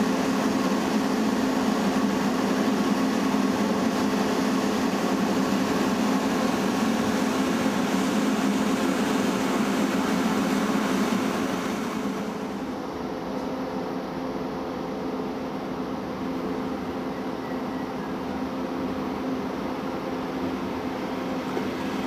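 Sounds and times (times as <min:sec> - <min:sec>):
fan-like rush: 0:00.0 - 0:13.2, 0:18.6 - 0:22.0
steady low hum: 0:00.0 - 0:22.0.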